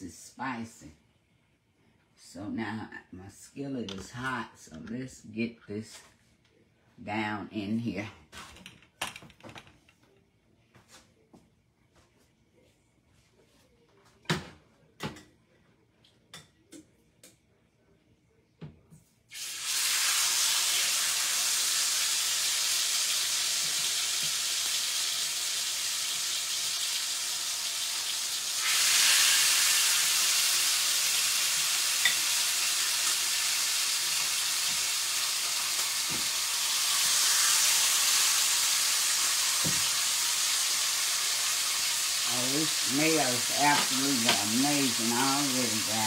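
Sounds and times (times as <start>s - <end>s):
chicken sizzling in a pan: 19.3s - 46.0s.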